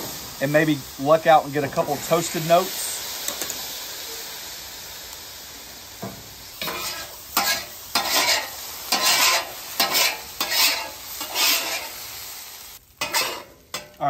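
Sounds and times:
faint sizzle: 0.0 - 14.0
metal spatula scraping griddle: 6.6 - 12.0, 13.0 - 14.0.

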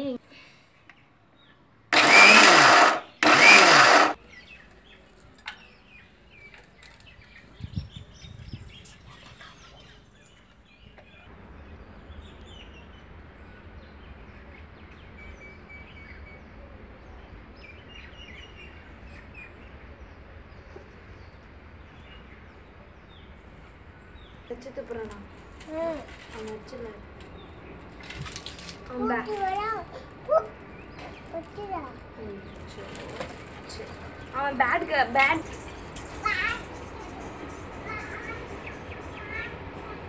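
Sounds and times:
mixer grinder grinding: 2.0 - 4.2.

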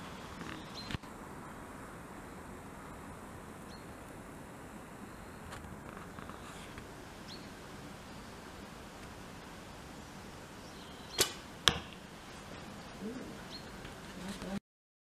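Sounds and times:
arrow striking target: 11.1 - 12.0
bow string snap: 11.2 - 12.0.

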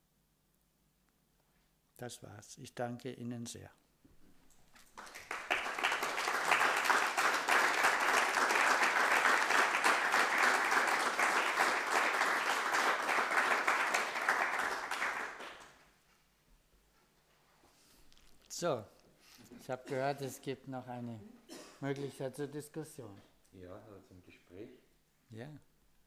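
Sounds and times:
audience applauding: 4.8 - 15.8.

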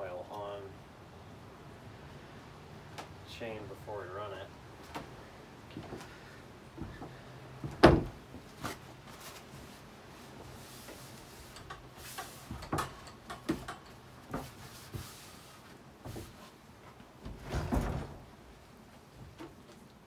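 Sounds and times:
light knocks and clatter: 11.5 - 15.1.

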